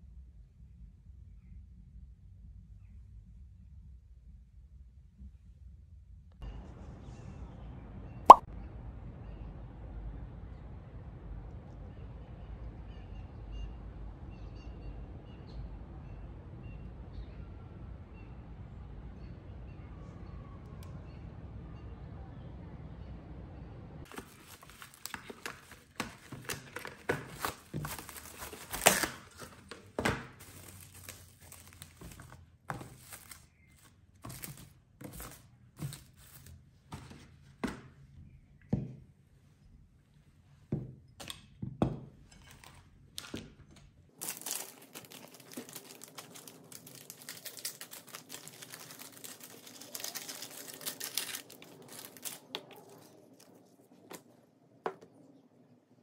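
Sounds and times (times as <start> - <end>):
cling film crinkling: 24.1 - 36.5, 44.1 - 54.3.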